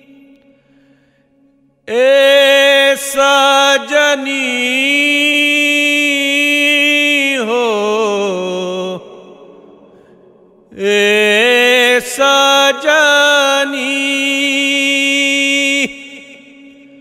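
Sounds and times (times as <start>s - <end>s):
man singing folk song: 1.9s - 9.1s, 10.7s - 16.7s.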